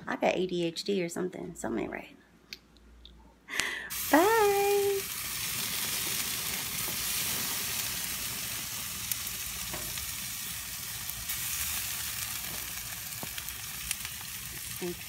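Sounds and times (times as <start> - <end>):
meat sizzling on a grill: 3.9 - 15.0.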